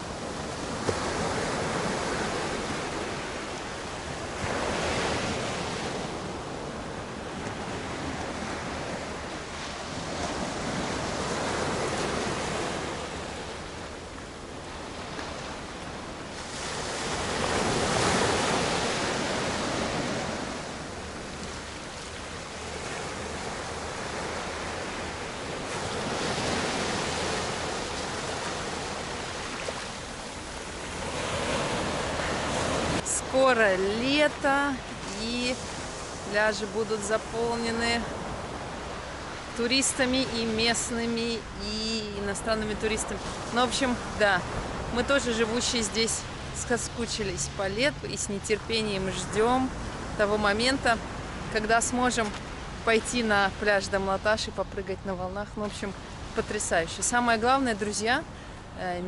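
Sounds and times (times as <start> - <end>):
waves breaking on rocky shore: 0.0 - 54.1.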